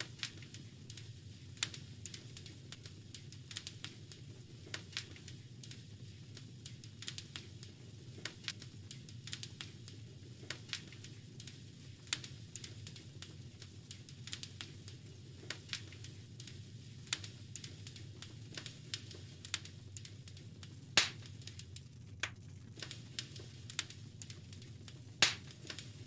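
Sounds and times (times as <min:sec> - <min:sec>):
wood fire crackling and popping: 0:00.0 - 0:26.0.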